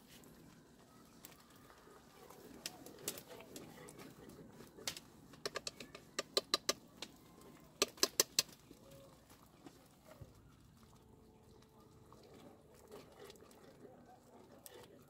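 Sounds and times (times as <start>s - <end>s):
chopsticks clicking on metal pot: 4.8s - 7.2s, 7.8s - 8.6s.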